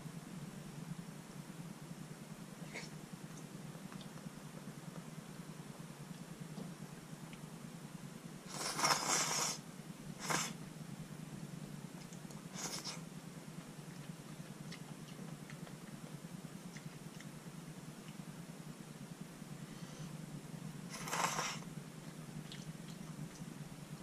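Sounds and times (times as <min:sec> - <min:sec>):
steady low hum: 0:00.0 - 0:24.0
person slurping noodles: 0:08.5 - 0:09.6, 0:20.9 - 0:21.6.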